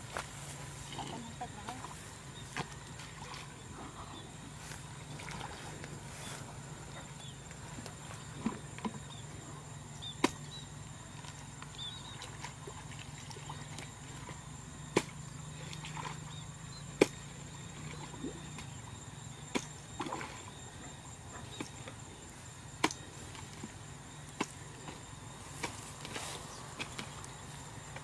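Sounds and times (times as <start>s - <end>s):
steady low hum: 0.0s - 28.0s
hoe chopping into wet mud: 14.9s - 15.2s, 19.5s - 20.3s, 22.8s - 23.0s.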